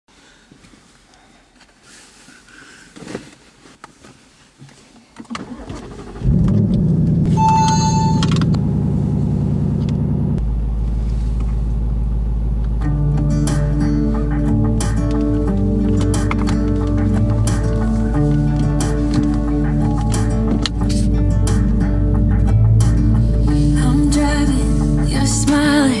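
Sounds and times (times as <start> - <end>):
clothing rustling: 0.1 - 5.6, 15.2 - 21.1
car engine starting and idling: 5.2 - 26.0
electronic dashboard chime: 7.3 - 9.6
seatbelt clicks: 14.8 - 21.1.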